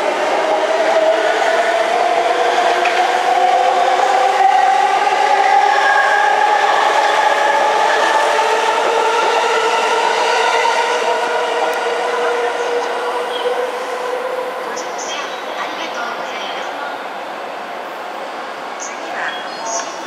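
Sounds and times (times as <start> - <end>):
wheels rumbling on rail: 0.0 - 20.0.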